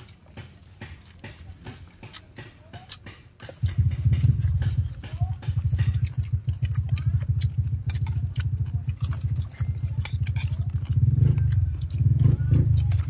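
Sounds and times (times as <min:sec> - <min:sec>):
low pulsing motor drone: 0:03.6 - 0:13.0.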